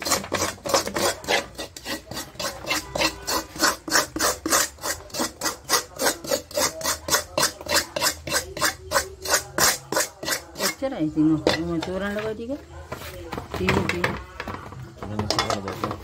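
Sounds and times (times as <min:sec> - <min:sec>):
metal spoon scraping wok: 0:00.0 - 0:12.7.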